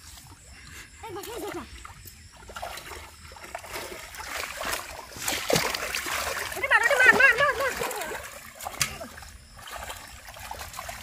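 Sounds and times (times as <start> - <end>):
hands splashing muddy water: 1.2 - 11.0.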